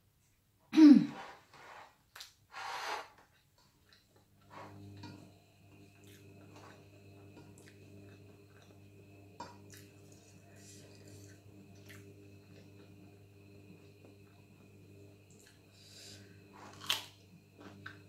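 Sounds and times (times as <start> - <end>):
washing machine hum: 4.0 - 18.0
person chewing: 16.7 - 17.9.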